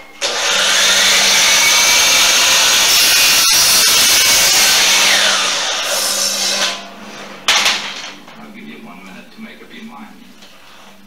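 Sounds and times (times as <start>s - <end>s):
miter saw cutting wood: 0.2s - 8.1s
sharp crack: 5.2s - 8.5s.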